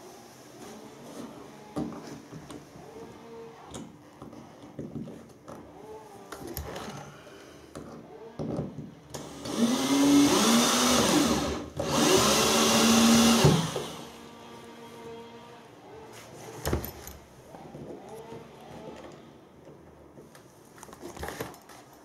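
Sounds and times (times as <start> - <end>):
cordless drill drilling into floor: 9.2 - 14.1
faint handling sounds: 14.4 - 22.0.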